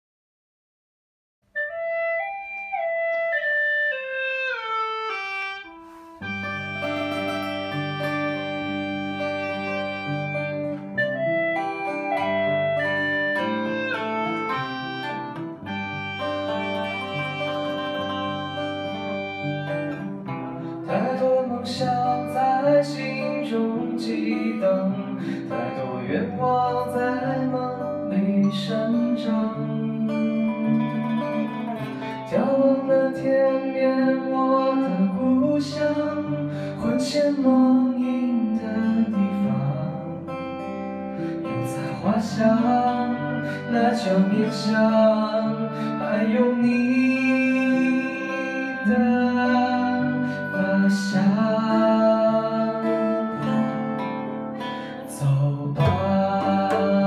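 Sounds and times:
gourd flute: 1.6s - 20.6s
strummed acoustic guitars: 2.2s - 57.0s
sung vocals: 20.6s - 40.4s, 41.2s - 57.0s.

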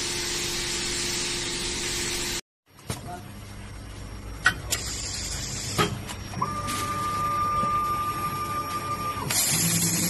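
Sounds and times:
welding machine high whine: 0.0s - 2.4s, 4.7s - 10.0s.

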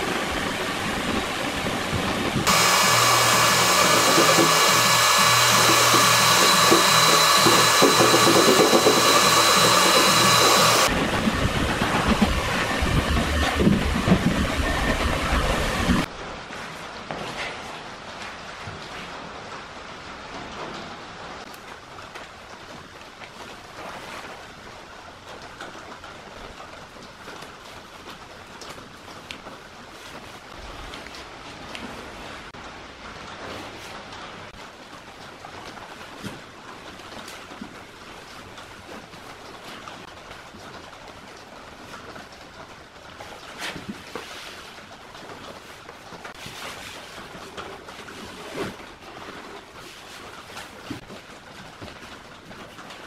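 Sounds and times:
vinyl film rustling and crinkling: 33.3s - 53.0s.

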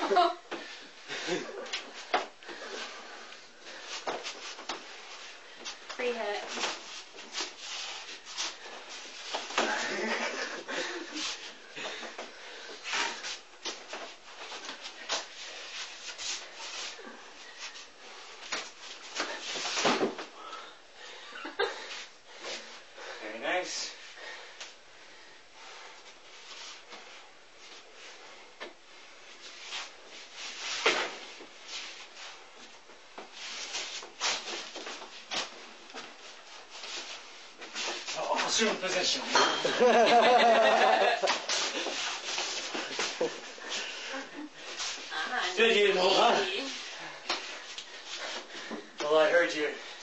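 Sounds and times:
shuffling feet: 0.1s - 20.2s, 25.7s - 39.2s, 39.8s - 50.0s
clothing rustle: 25.8s - 50.0s.

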